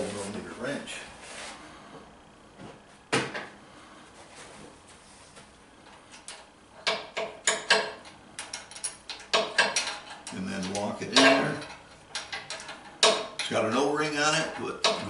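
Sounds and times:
metal tools clanking: 6.8s - 15.0s.

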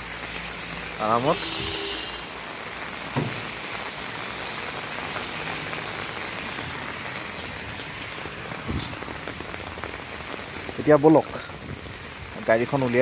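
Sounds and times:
heavy rain on umbrella: 0.0s - 13.0s.

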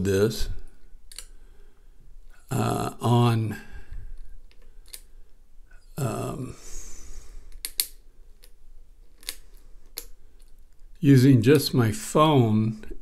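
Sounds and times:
lock pick clicks and scrapes: 7.5s - 10.5s.

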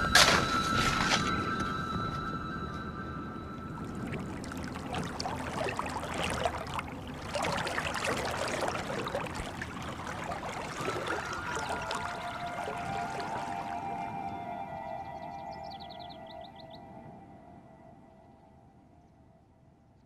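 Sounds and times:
water pouring into a tub: 3.8s - 13.8s.

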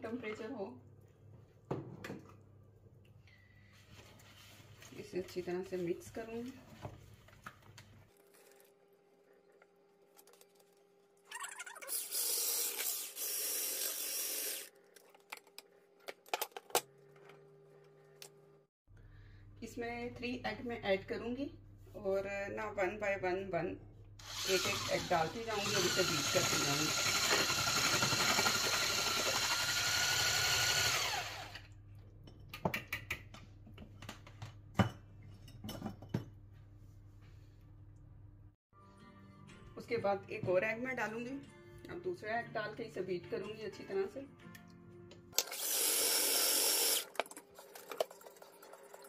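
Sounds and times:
electric hand blender whisking: 24.2s - 31.7s, 45.4s - 47.1s.

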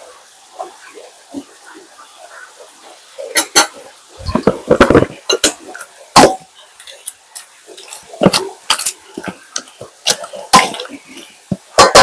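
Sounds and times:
water splashing: 0.0s - 12.0s
utensils clinking on pots and dishes: 3.2s - 12.0s.

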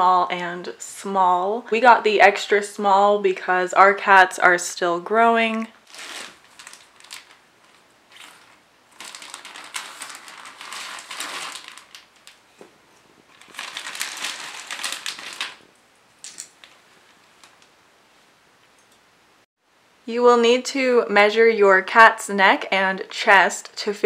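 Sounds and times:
plastic bag crinkling: 5.4s - 17.7s.

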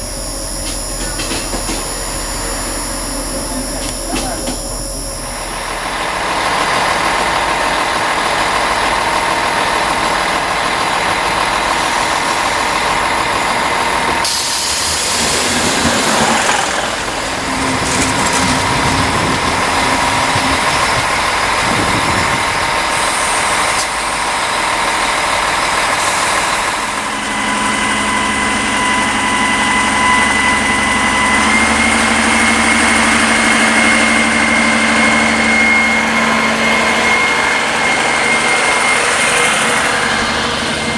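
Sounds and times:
diesel railcar engine whine: 0.0s - 40.9s
sudden rush of noise: 14.1s - 23.8s.

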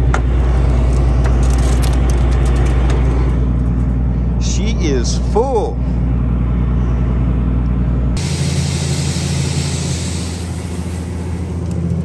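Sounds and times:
combine engine humming: 0.0s - 12.0s
hiss: 8.2s - 11.6s.

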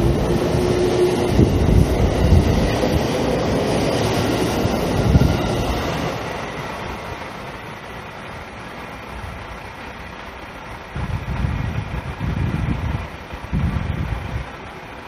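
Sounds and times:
wind buffeting microphone: 0.0s - 6.4s, 10.8s - 14.7s
electric train rumbling: 0.0s - 15.0s.

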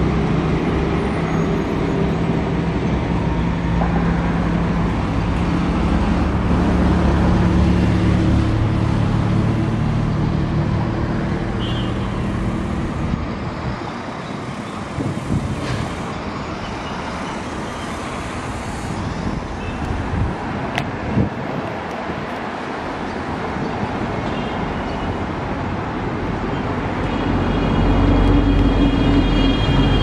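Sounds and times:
traffic hiss: 0.0s - 30.0s
low engine drone: 2.3s - 13.4s.

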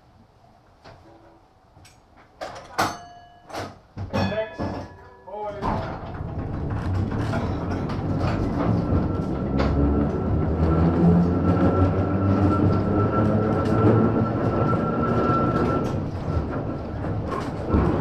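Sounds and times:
tram rumble: 4.2s - 18.0s.

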